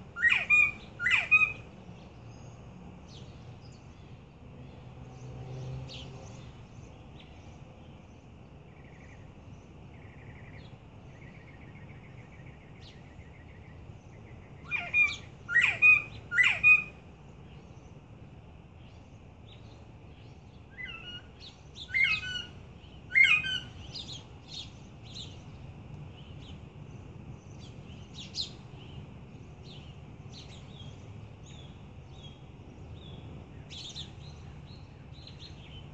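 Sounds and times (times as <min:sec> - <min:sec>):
young quail chirping: 0:00.2 - 0:01.6, 0:14.7 - 0:16.9.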